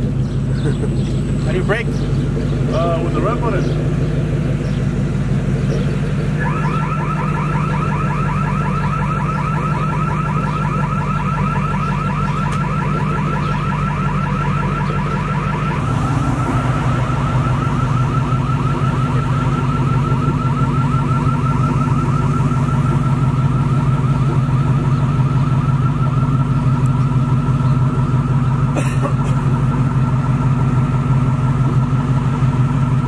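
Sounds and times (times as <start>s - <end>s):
electronic alarm warbling: 5.4s - 28.6s.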